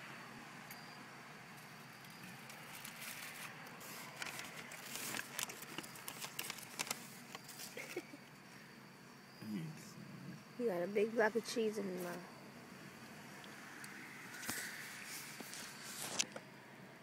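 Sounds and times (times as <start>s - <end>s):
baby eating clicks and crackles: 2.1s - 8.0s.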